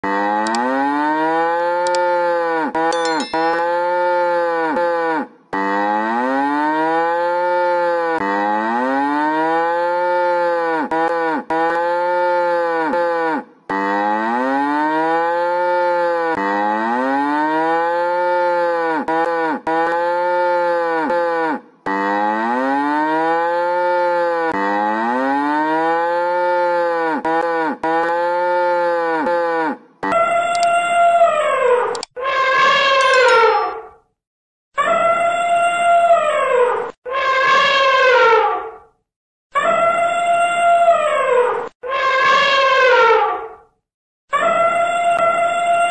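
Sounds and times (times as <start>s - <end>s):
faint high ding tones: 2.9s - 4.1s.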